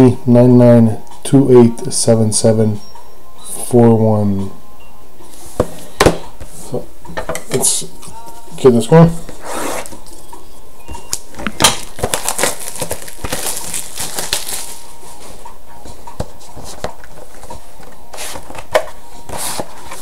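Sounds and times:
plastic wrapping crinkling and tearing: 11.1 - 15.2
cardboard box clicks and rustles: 11.8 - 14.8.

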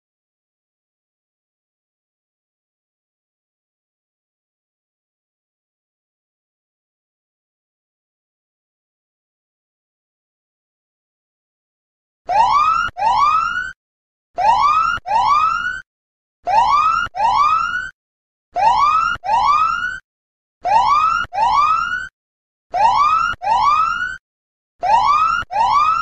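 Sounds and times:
electronic whooping siren alarm: 12.3 - 13.8, 14.4 - 15.8, 16.5 - 18.0, 18.6 - 20.0, 20.6 - 22.1, 22.7 - 24.2, 24.8 - 26.0.

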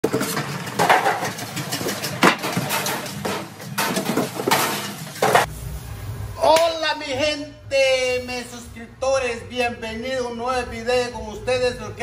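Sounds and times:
metal pans clattering in sink: 0.0 - 5.5.

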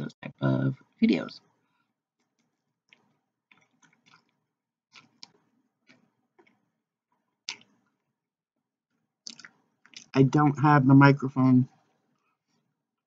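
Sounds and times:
person chewing food: 2.9 - 6.6, 9.2 - 10.1.

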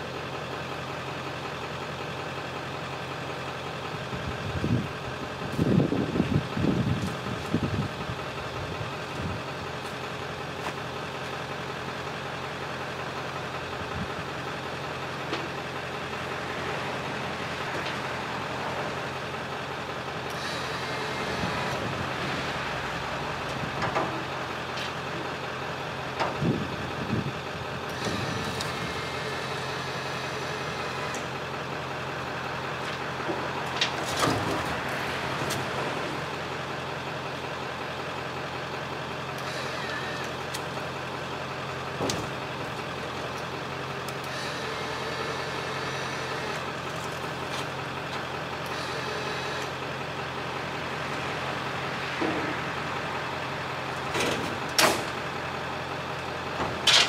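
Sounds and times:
diesel truck engine idling: 0.0 - 57.0
metal clanks and knocks: 23.6 - 25.0, 52.2 - 52.6, 54.0 - 55.2, 56.6 - 57.0.

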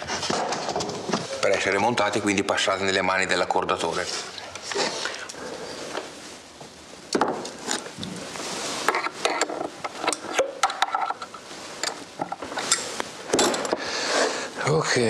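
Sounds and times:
wood and metal clicks and scraping: 8.8 - 13.9.

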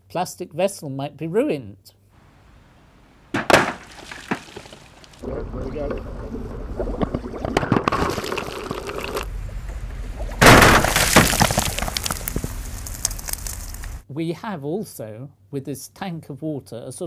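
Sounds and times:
churning water: 3.7 - 11.4
glass tube cracking underwater: 6.8 - 9.3, 10.4 - 13.8.

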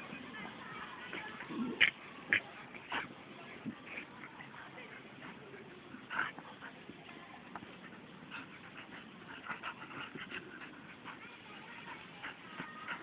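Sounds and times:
dogs whimpering: 9.4 - 13.0.

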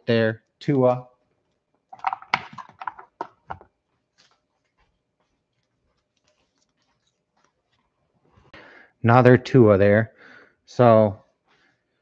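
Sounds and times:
cards clicking and rustling: 2.0 - 4.5.

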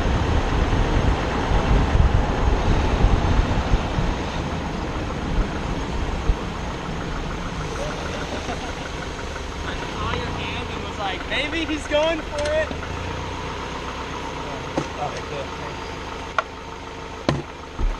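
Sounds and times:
wind on microphone: 0.0 - 6.7
wheels rolling on rough asphalt: 0.0 - 17.9.

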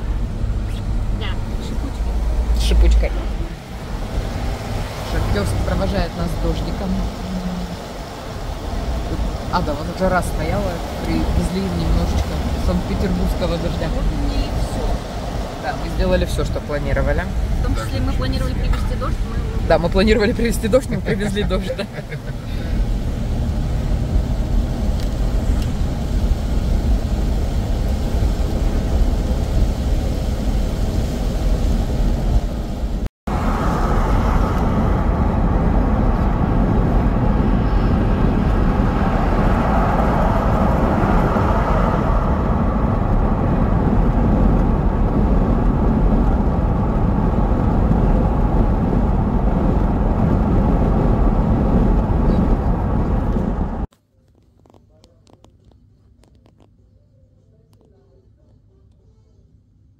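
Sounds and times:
road and engine noise in car: 0.0 - 59.9
tyres hissing on wet road: 0.1 - 42.6.

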